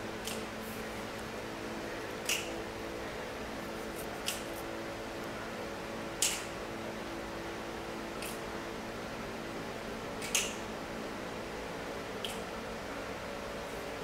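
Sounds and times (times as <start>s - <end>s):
electric fan humming: 0.0s - 14.0s
short sharp snap: 2.2s - 2.5s, 6.2s - 6.5s, 8.2s - 8.4s, 10.2s - 10.6s, 12.2s - 12.4s.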